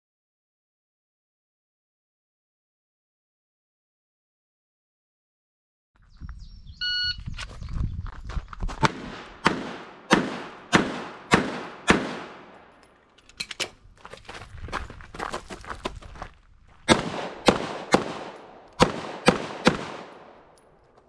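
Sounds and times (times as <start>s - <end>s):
shot timer beep: 6.8s - 7.2s
pistol shots: 8.8s - 12.8s, 16.9s - 20.6s.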